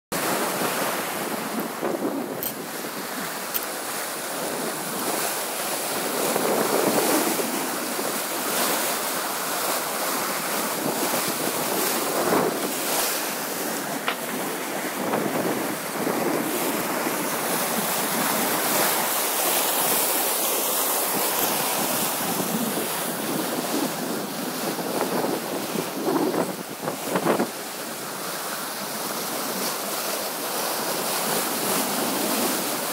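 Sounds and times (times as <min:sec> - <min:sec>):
water splashing along hull: 0:00.1 - 0:32.9
wind buffeting microphone: 0:00.2 - 0:19.2, 0:21.1 - 0:28.1.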